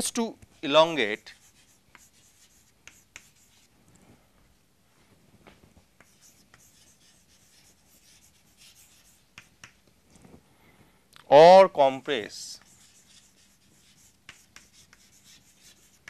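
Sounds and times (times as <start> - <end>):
chalk scratching on chalkboard: 0.5 - 3.7, 6.0 - 9.8, 12.4 - 16.0
chalk tapping: 0.5 - 3.7, 5.9 - 9.9, 12.5 - 16.0.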